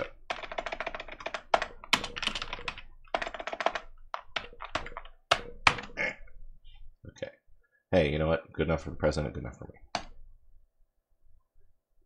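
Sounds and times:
typing on keyboard: 0.2s - 6.0s.

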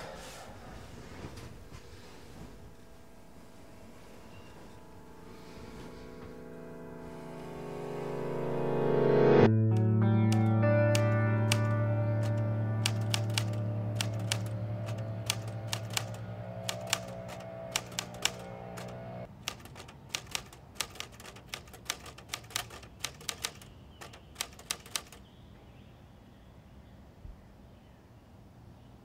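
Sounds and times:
music with held tones: 1.6s - 19.3s
typewriter keys clacking: 9.8s - 25.2s.

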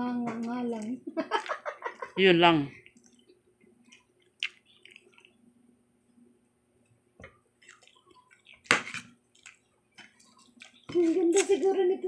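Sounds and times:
small eating clicks: 2.8s - 5.4s, 7.6s - 12.0s.

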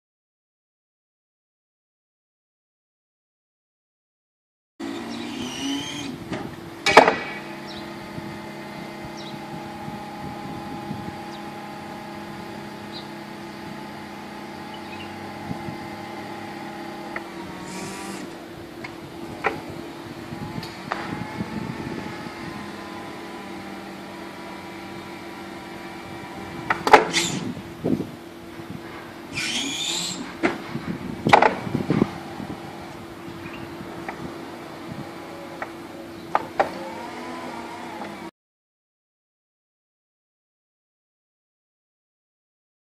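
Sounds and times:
forklift hydraulics humming: 4.8s - 38.3s.

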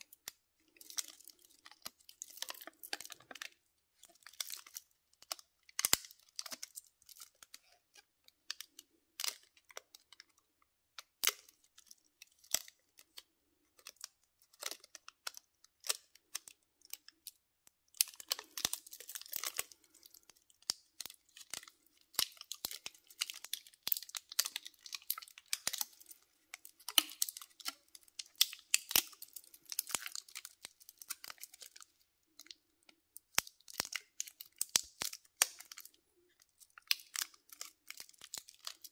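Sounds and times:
plastic film crinkling: 0.0s - 10.2s, 18.0s - 32.6s, 33.2s - 38.9s.

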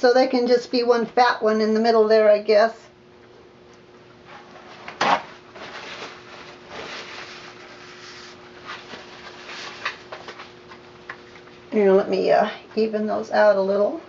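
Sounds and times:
faint steady hum: 0.0s - 14.0s
gloved hands rubbing paper towel: 5.9s - 9.9s.

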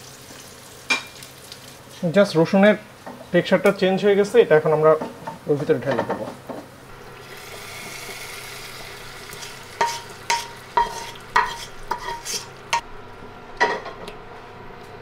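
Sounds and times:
hot oil sizzling: 0.0s - 3.0s, 6.8s - 13.0s.

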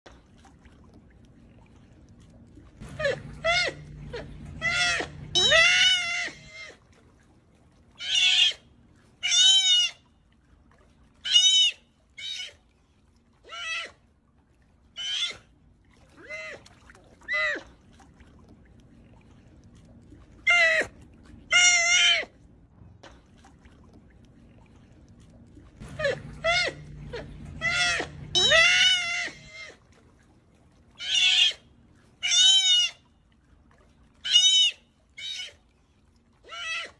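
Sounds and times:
sea otter squealing calls: 4.6s - 6.8s, 8.0s - 10.1s, 11.2s - 12.6s, 13.4s - 14.0s, 15.0s - 15.5s, 20.4s - 22.4s, 26.0s - 29.8s, 31.0s - 33.1s, 34.2s - 35.6s, 36.4s - 36.9s.

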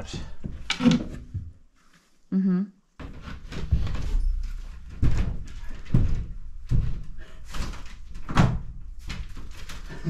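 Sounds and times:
dull knocks and thuds: 4.8s - 9.6s.

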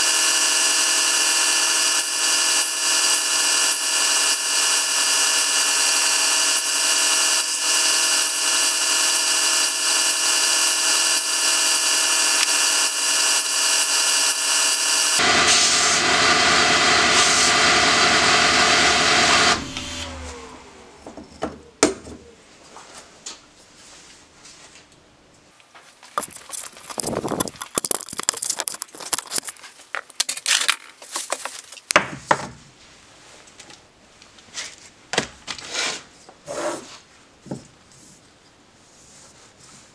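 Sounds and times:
belt grinder whining: 0.0s - 21.0s, 26.2s - 30.2s
motor spinning down: 0.0s - 21.2s
rubbing and scraping: 25.8s - 31.9s, 35.6s - 37.1s.

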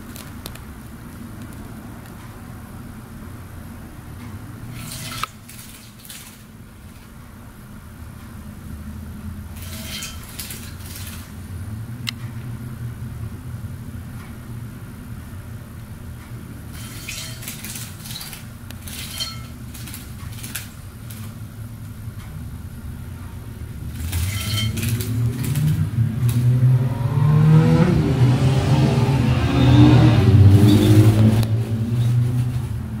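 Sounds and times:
steady low hum: 0.0s - 33.0s
deep shifting rumble: 21.5s - 33.0s.

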